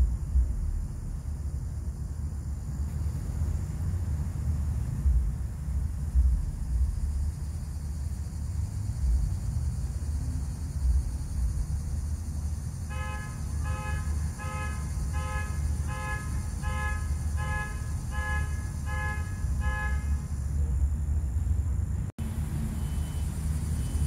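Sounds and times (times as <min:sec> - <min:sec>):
low rumble: 0:00.0 - 0:12.9
horn beeping short blasts: 0:12.9 - 0:20.3.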